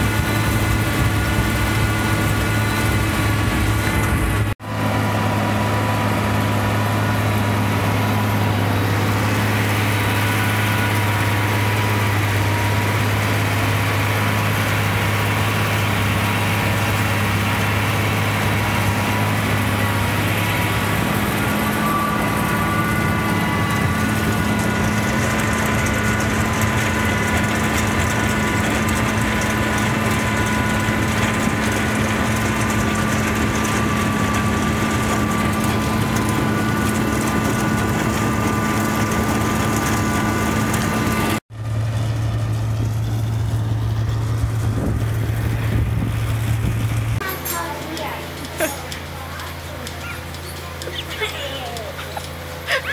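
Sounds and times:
tractor diesel engine drone: 0:00.0 - 0:52.9
whine of conveyors and chains: 0:05.8 - 0:41.4, 0:46.8 - 0:52.9.

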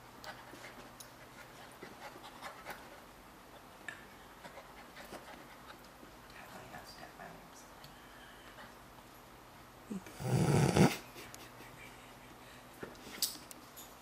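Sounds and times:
puppy panting: 0:00.2 - 0:03.1, 0:04.4 - 0:05.8.

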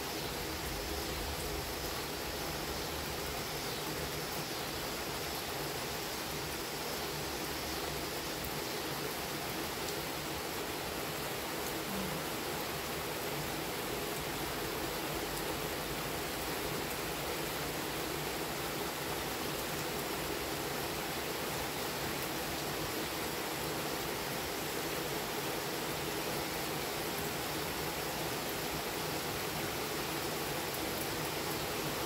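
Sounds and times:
steady rain falling: 0:00.0 - 0:32.0.

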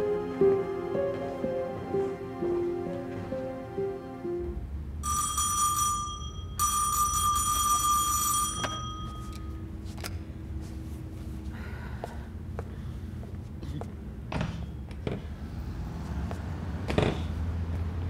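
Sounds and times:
soft background music: 0:00.0 - 0:04.8
electric bell ringing: 0:05.0 - 0:09.7.

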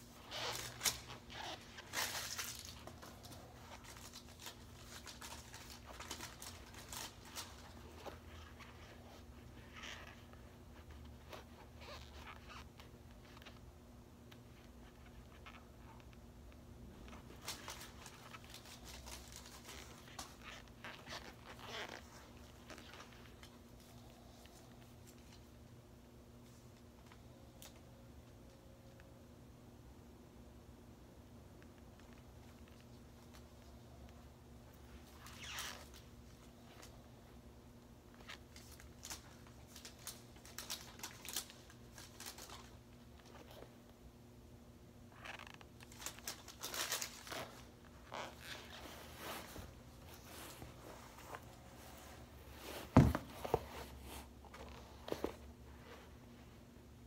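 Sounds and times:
shoe sole scuffing: 0:48.1 - 0:55.4.

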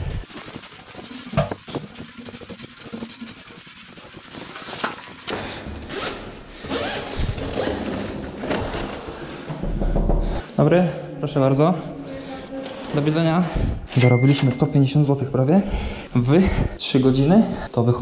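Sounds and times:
zip being pulled open: 0:05.9 - 0:07.9.

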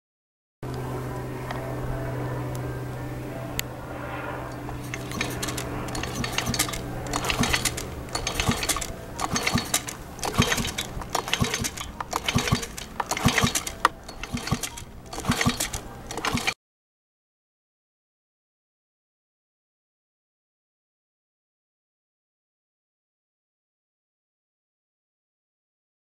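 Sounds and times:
leaf blower recoil starter pulled: 0:04.6 - 0:16.6
clattering clicks and rattles: 0:04.7 - 0:16.6.

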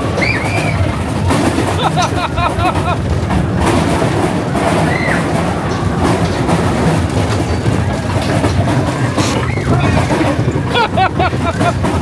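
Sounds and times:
high wheel squeal: 0:00.0 - 0:01.0, 0:04.8 - 0:05.3
roller coaster rumbling on rails: 0:00.0 - 0:12.0.

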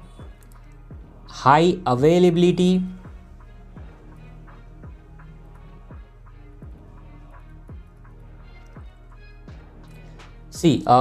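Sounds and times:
soft background music: 0:00.0 - 0:11.0.

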